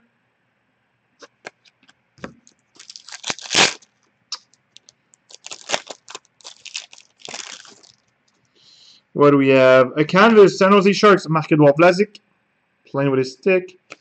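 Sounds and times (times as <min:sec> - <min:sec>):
foil wrapper crinkling and tearing: 0:02.4 - 0:08.1.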